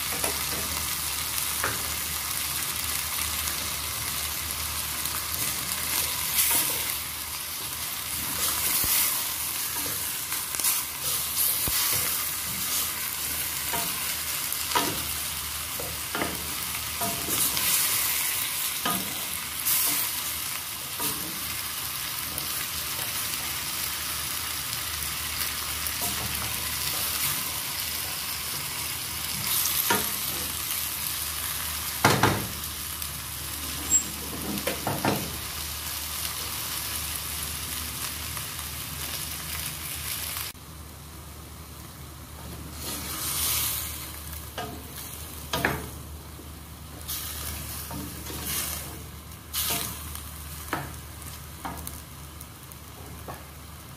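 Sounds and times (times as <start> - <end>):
chicken and onion sizzling: 0.0 - 53.9.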